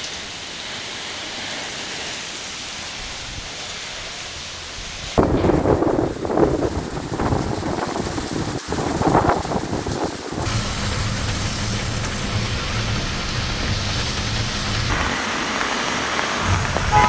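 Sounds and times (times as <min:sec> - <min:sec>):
heavy rain pouring: 0:00.0 - 0:17.0
wet road traffic: 0:00.0 - 0:17.0
low engine hum: 0:09.4 - 0:17.0.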